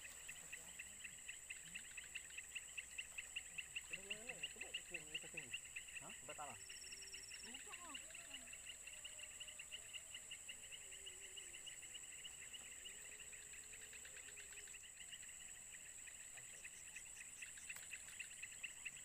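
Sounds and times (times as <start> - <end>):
insect hum: 0.0 - 19.0
insect pulsing chirp: 0.0 - 19.0.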